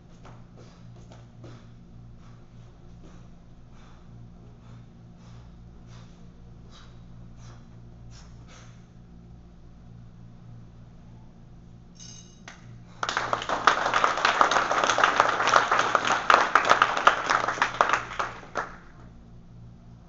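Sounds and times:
small audience clapping: 12.5 - 19.1.

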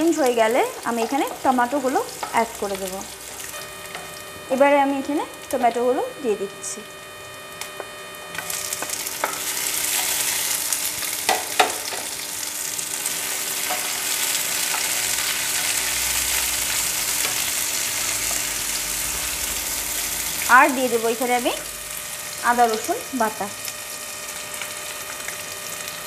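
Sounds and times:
food sizzling in hot oil: 0.0 - 26.0
sharp knocks on a pan: 11.3 - 12.1.

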